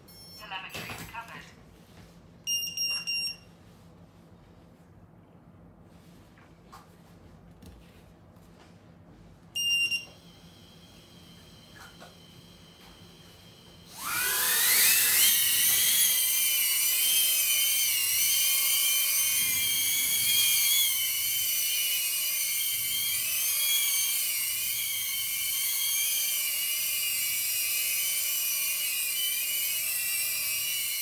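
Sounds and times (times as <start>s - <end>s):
quadcopter motors whining: 10.0s - 31.0s.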